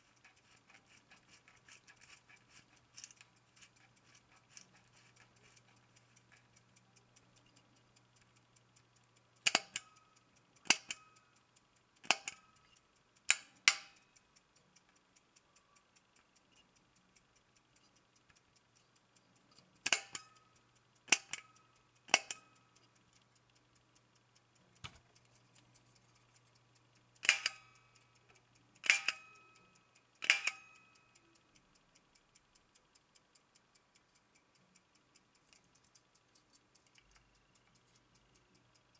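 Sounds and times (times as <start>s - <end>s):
clock ticking faintly: 0.0s - 38.9s.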